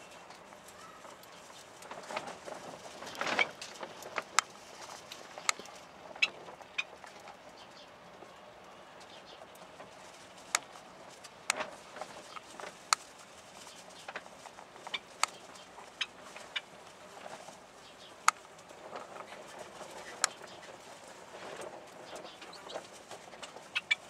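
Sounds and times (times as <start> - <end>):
cockatiels chirping: 22.1 - 24.0.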